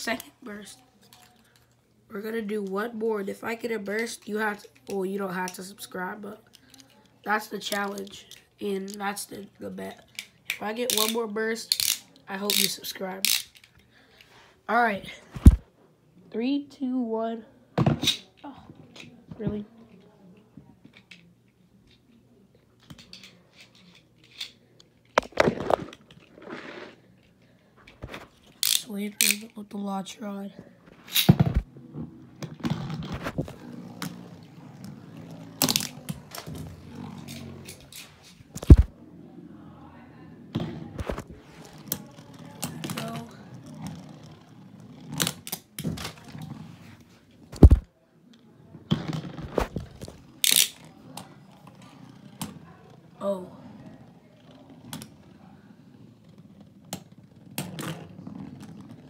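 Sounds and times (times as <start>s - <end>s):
plastic spinning tops clicking: 10.2s - 13.7s, 28.5s - 29.5s, 50.4s - 50.9s.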